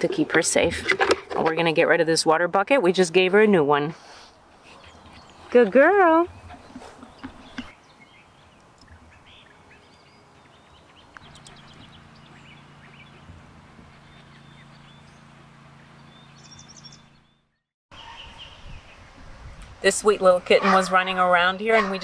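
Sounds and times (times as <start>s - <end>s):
steady low hum: 4.3s - 17.4s
faint songbird chirps: 4.7s - 19.6s.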